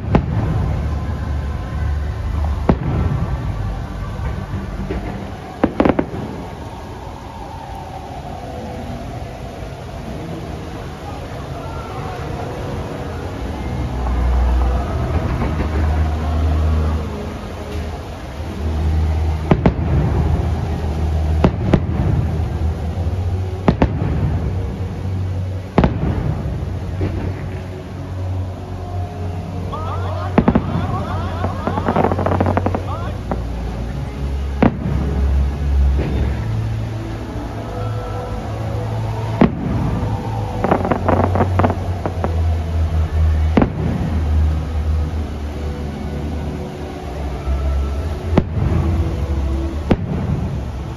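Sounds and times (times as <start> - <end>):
firework booms: 0.0 - 1.0, 2.4 - 3.6, 4.2 - 6.7, 19.5 - 20.6, 21.4 - 22.6, 23.6 - 24.5, 30.4 - 31.0, 34.6 - 35.2, 39.4 - 42.3, 43.6 - 44.2, 49.9 - 50.6
steady low rumble: 0.0 - 50.9
crackling firework pops: 4.2 - 6.6.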